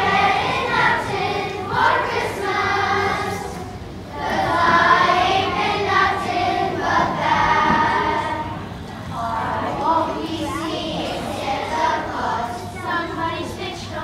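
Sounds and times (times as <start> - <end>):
children's choir singing: 0.0 - 14.0.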